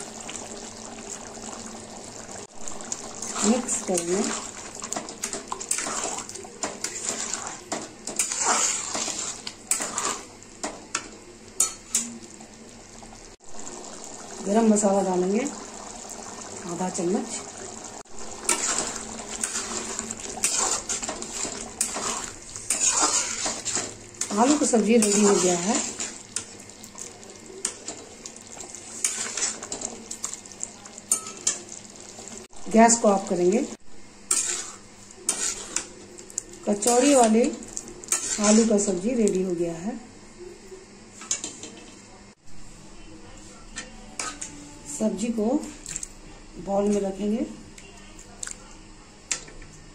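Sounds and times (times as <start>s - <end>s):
curry gravy sloshing: 0.0s - 10.4s, 13.6s - 30.9s
spatula scraping metal pan: 3.2s - 10.3s, 18.4s - 26.5s, 28.9s - 29.9s, 34.3s - 35.9s, 38.1s - 38.9s, 43.8s - 45.0s.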